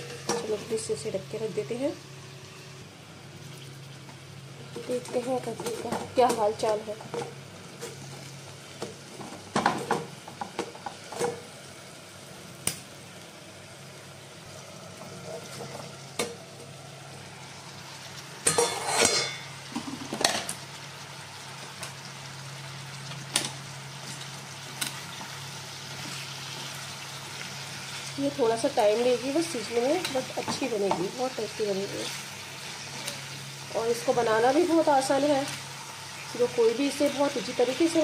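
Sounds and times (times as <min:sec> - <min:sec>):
faint frying sizzle: 0:00.0 - 0:38.0
metal lid clinking: 0:18.4 - 0:19.5.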